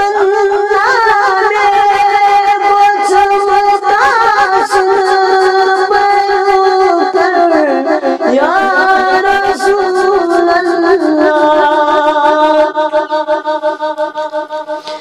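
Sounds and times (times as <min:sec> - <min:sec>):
man singing unaccompanied: 0:06.5 - 0:14.8.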